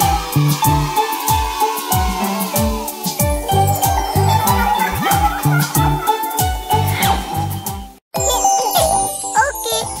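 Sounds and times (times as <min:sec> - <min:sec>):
children's music with steady beat: 0:00.0 - 0:10.0
tinkling chime gliding downward: 0:03.4 - 0:05.4.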